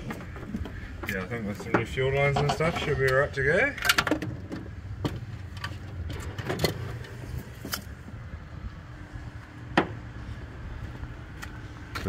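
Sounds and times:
clicks and knocks of handling parts: 0.0s - 7.9s
steady low hum: 4.2s - 12.0s.

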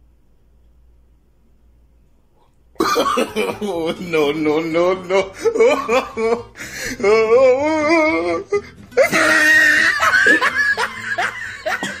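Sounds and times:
man groaning: 2.8s - 10.1s
man gagging: 2.8s - 12.0s.

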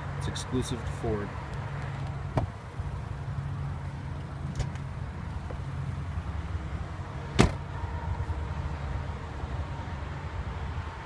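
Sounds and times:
low outdoor rumble: 0.0s - 11.0s
car door shutting: 2.3s - 2.6s, 4.5s - 4.9s, 7.3s - 7.7s.

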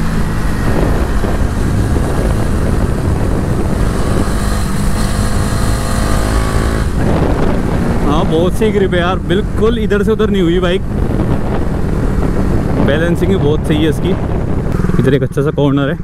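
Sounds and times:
wind on microphone: 0.0s - 15.3s
motorcycle engine running: 0.0s - 15.5s.

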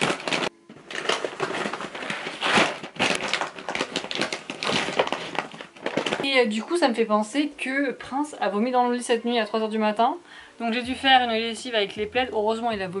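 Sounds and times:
bags of cat food crinkling: 0.0s - 6.6s.

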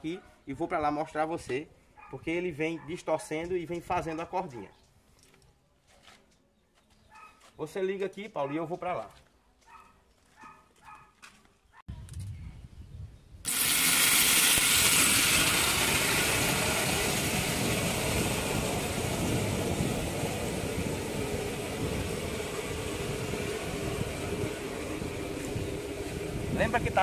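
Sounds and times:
motor and chain drive running: 13.5s - 27.0s.

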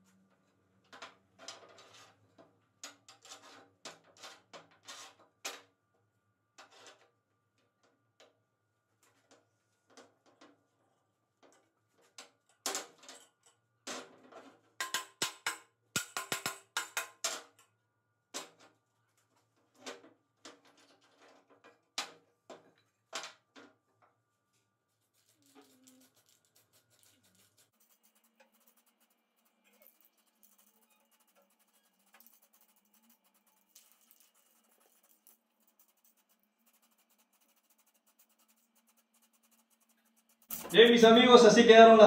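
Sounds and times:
wooden blocks knocking on steel: 14.8s - 17.2s
hammer tapping metal clamps: 14.8s - 17.3s.

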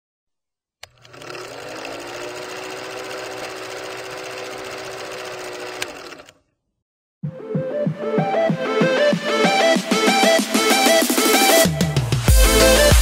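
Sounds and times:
film projector clattering: 0.8s - 6.4s.

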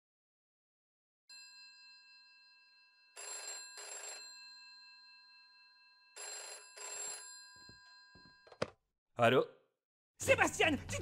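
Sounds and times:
telephone bell ringing: 1.3s - 8.7s.

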